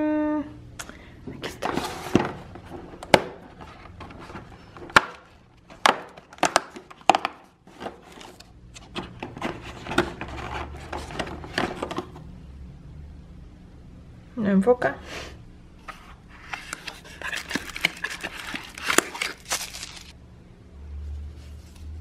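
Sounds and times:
rustling and scraping: 0:01.4 - 0:12.2, 0:15.8 - 0:20.2, 0:21.0 - 0:22.0.

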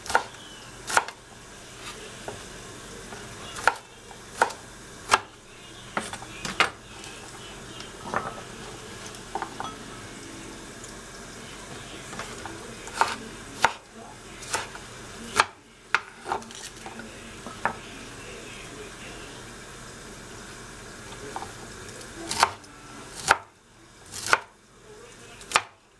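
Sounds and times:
vegetables sizzling in a pan: 0:00.0 - 0:25.9
knife and utensils knocking: 0:09.3 - 0:09.8.

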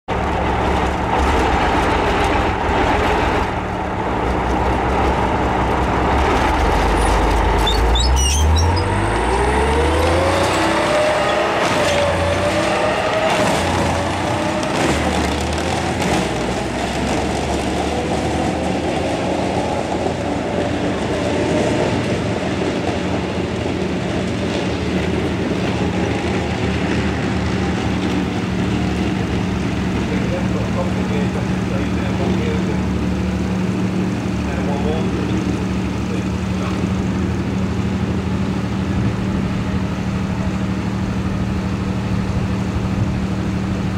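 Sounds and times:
rising whine: 0:00.1 - 0:32.0
tank engine running loud: 0:00.1 - 0:43.9.

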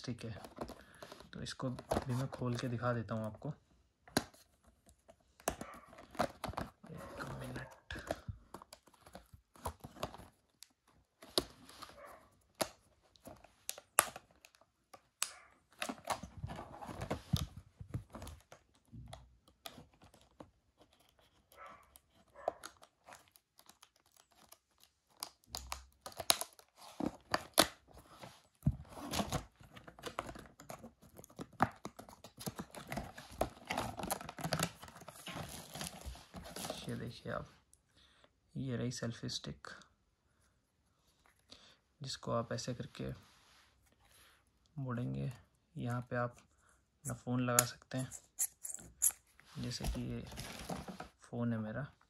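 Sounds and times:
plastic crinkling and scraping: 0:00.0 - 0:03.0, 0:04.3 - 0:14.6, 0:15.7 - 0:37.2, 0:47.9 - 0:51.3.

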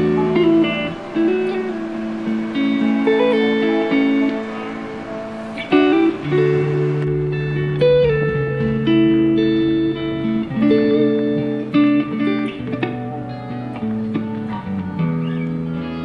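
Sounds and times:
held bass line: 0:00.0 - 0:16.0
plucked guitar music: 0:00.0 - 0:16.0.

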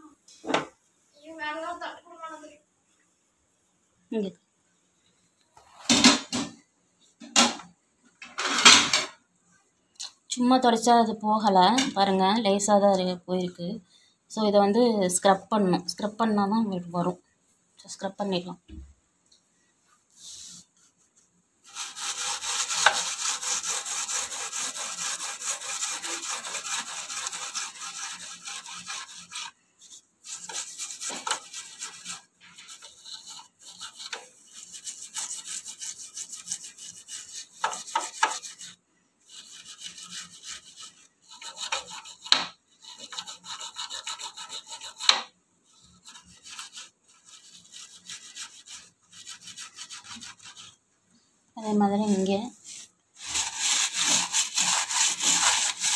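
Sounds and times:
steel wool scrubbing stove: 0:20.1 - 0:50.8, 0:51.6 - 0:55.9.

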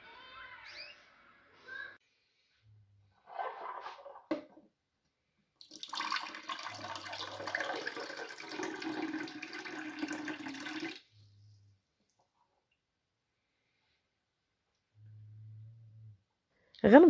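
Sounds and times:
water pouring into a glass: 0:05.6 - 0:11.1.

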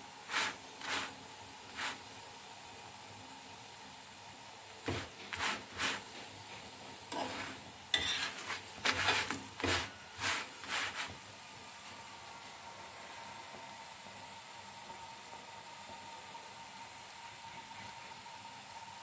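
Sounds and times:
faint steady hiss: 0:00.0 - 0:19.0
spatula scraping sizzling flatbread: 0:00.2 - 0:02.2, 0:04.8 - 0:11.3.

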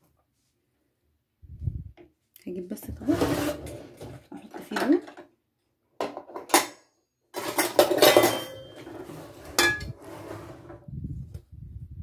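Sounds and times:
metal dish clattering scrape: 0:03.0 - 0:04.2, 0:07.3 - 0:10.8.

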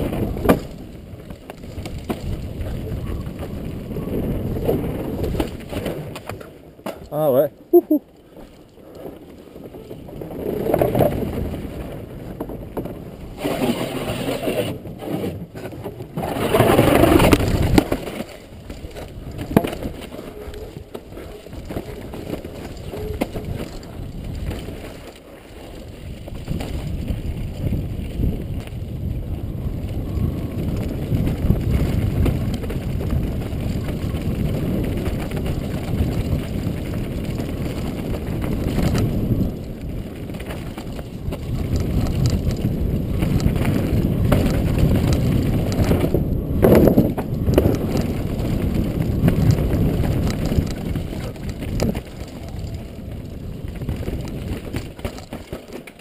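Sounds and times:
wind rushing over microphone: 0:00.0 - 0:06.1, 0:25.8 - 0:55.4
bike tyres rattling over trail: 0:00.0 - 0:56.0.

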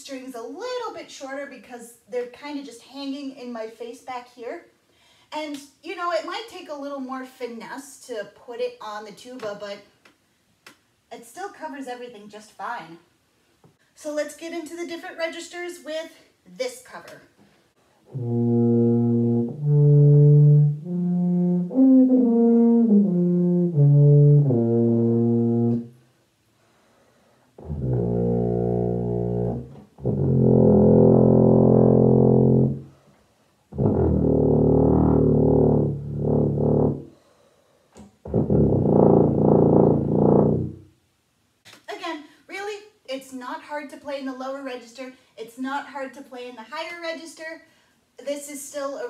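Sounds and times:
muted tuba playing notes: 0:18.0 - 0:26.0, 0:27.6 - 0:33.0, 0:33.7 - 0:37.1, 0:38.2 - 0:40.9.

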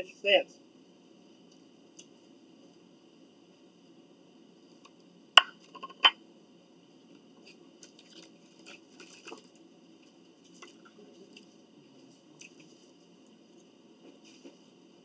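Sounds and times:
crunching and chewing salad: 0:07.4 - 0:14.5.

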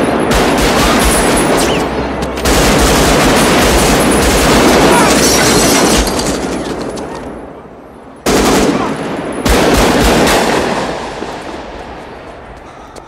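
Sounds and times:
automatic rifle fire echoing: 0:00.0 - 0:06.4, 0:08.3 - 0:11.0.

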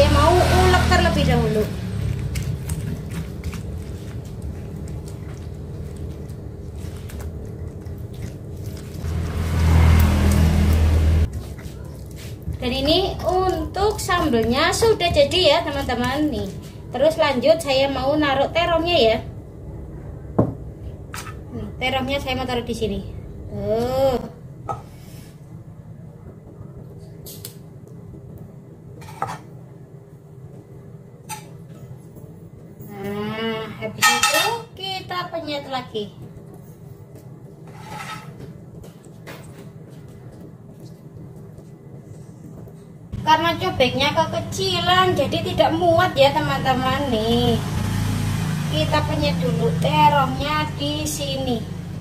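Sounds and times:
low steady hum: 0:00.0 - 0:47.8
metal tongs clinking on cookware: 0:34.0 - 0:34.6.

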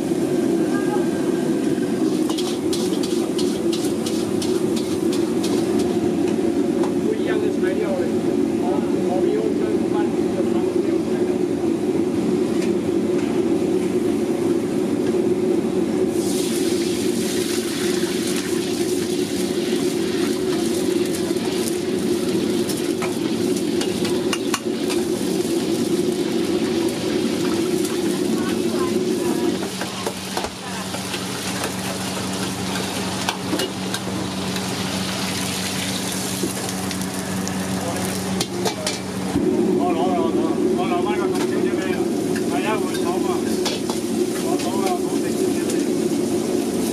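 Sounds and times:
gas wok burner roaring: 0:00.0 - 0:46.9
oil sizzling in hot wok: 0:01.2 - 0:06.9, 0:16.0 - 0:39.3, 0:41.3 - 0:46.9.

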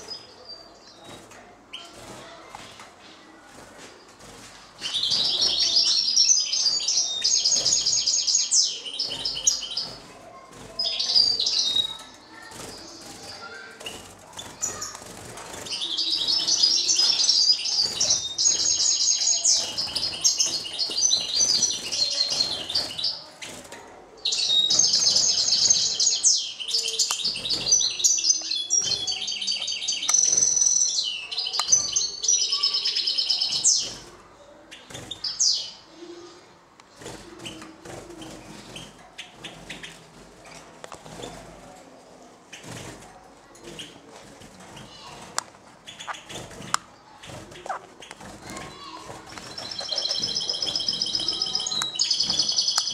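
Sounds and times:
goldfinch twittering song: 0:48.5 - 0:52.9.

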